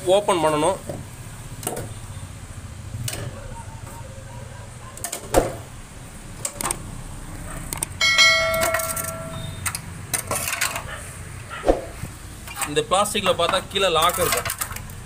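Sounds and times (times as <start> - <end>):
bell-like chime: 8.0 - 9.6.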